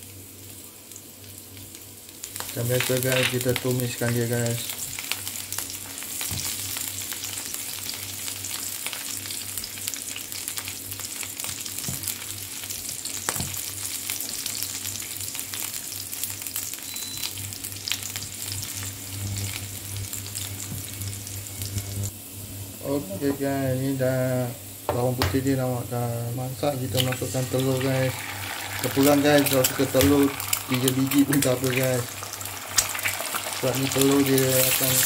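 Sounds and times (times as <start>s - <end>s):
garlic sizzling in hot oil: 0.0s - 35.0s
low steady hum: 16.9s - 35.0s.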